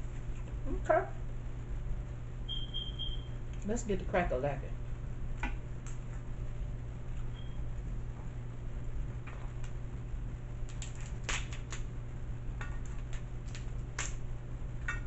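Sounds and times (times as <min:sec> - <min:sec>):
crab shells cracking: 0:10.6 - 0:11.9, 0:12.6 - 0:14.2.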